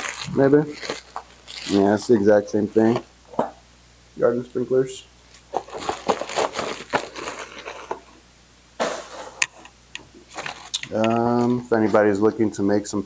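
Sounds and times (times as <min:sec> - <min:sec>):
plastic bag rustling: 0:00.0 - 0:03.0, 0:05.3 - 0:08.2, 0:10.2 - 0:12.1.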